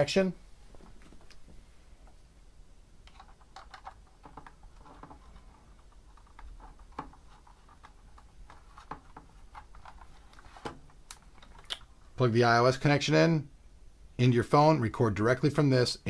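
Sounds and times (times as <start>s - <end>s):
fingers tapping plastic keyboard: 3.1s - 5.2s.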